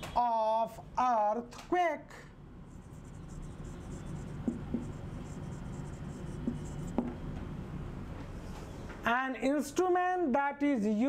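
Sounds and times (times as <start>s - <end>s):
marker scratching on whiteboard: 2.7s - 7.3s
light marker taps: 3.1s - 7.5s.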